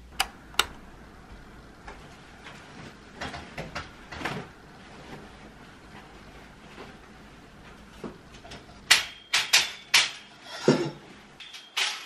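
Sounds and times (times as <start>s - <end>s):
sharp clicks: 0.0s - 0.8s.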